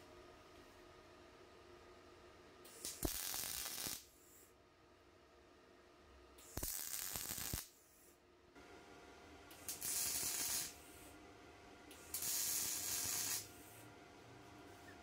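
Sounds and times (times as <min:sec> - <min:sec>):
faint steady hum: 0:00.0 - 0:15.0
welding arc crackling: 0:02.7 - 0:04.2, 0:06.4 - 0:07.8, 0:09.5 - 0:11.1, 0:11.9 - 0:13.8.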